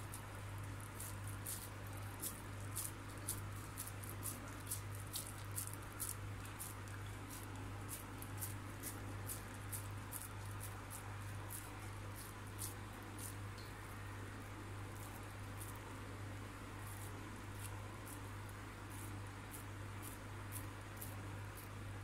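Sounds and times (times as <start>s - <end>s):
hands squishing minced meat: 0.0s - 13.4s
steady low hum: 0.0s - 22.0s.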